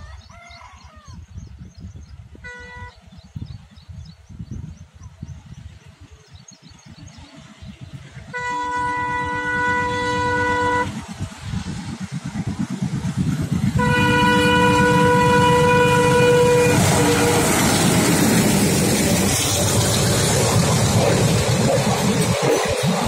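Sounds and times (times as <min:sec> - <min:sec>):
train wheels rumbling on rail: 0:01.9 - 0:23.0
locomotive air horn: 0:02.4 - 0:03.0, 0:08.3 - 0:11.2, 0:13.7 - 0:18.4
diesel engines chugging: 0:07.1 - 0:23.0.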